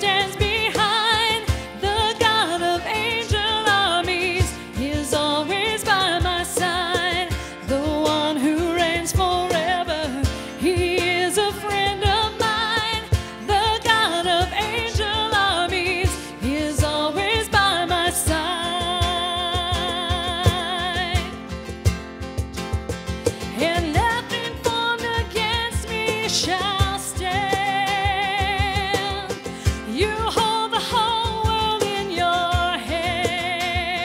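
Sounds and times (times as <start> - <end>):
singers with vibrato: 0.0 - 21.4, 23.4 - 34.0
steady drum beat: 18.3 - 31.8.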